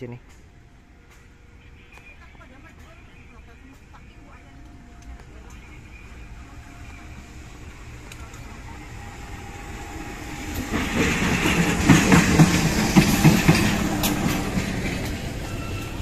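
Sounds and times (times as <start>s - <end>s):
diesel locomotive engine: 0.0s - 16.0s
train wheels clacking on rails: 7.8s - 16.0s.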